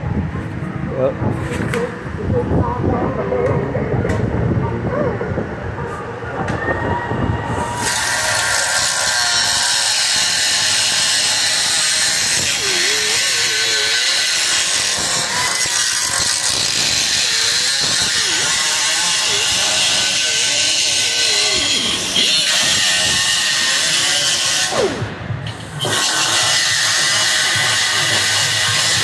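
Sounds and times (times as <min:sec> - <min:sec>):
pneumatic cut-off tool grinding steel: 0:07.8 - 0:29.0.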